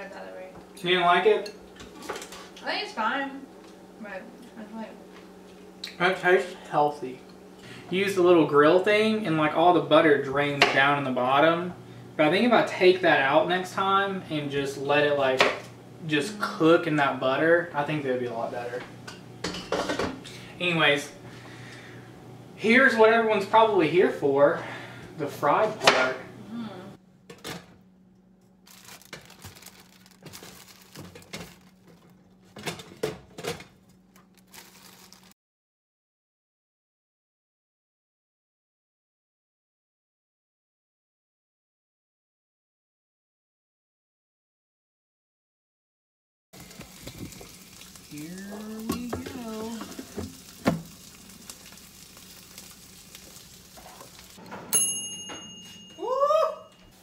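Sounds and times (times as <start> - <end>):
plastic bag crinkling: 28.6 - 32.5, 33.9 - 35.4.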